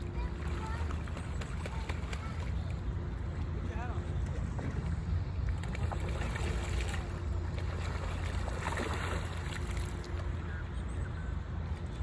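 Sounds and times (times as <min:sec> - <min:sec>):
goslings splashing in water: 0:00.2 - 0:02.8, 0:05.4 - 0:10.6.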